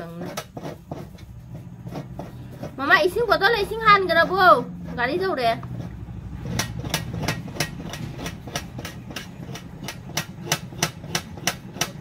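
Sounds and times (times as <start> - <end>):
steady low hum: 0.0 - 12.0
sharp clicks on steel plate: 6.4 - 12.0.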